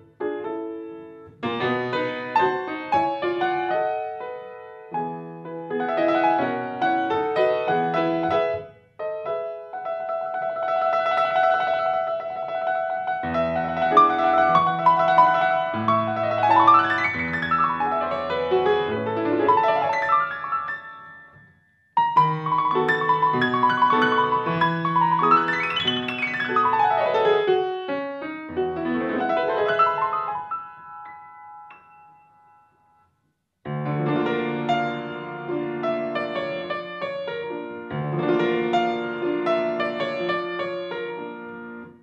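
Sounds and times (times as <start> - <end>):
grand piano playing: 0.0 - 33.0, 33.7 - 42.0.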